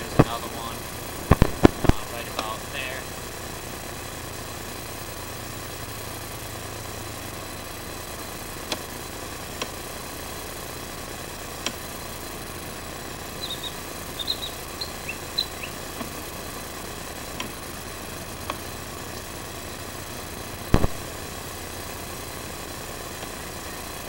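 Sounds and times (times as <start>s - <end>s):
motor running steadily: 0.0s - 24.0s
sharp clicks: 1.2s - 2.6s, 8.6s - 8.9s, 13.3s - 16.2s, 17.4s - 17.6s, 20.7s - 21.1s
short high chirps: 13.4s - 15.8s.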